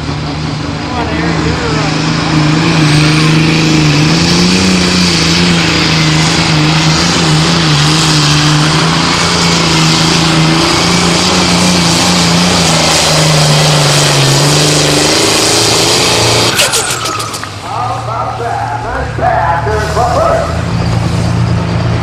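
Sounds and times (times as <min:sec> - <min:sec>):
tractor diesel engine at high revs: 0:00.0 - 0:22.0.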